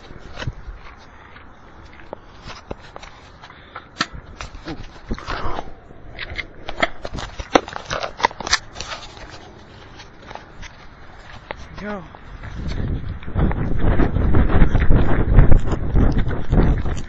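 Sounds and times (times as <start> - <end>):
rustling: 0.0 - 13.1
sharp clicks and cracks: 1.8 - 12.0, 14.6 - 17.0.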